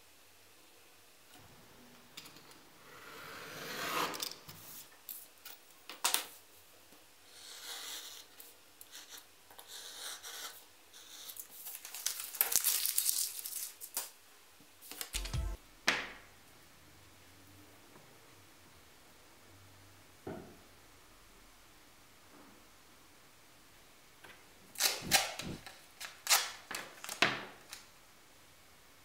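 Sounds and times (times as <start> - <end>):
utility knife rasping through paper: 24.8 - 25.6.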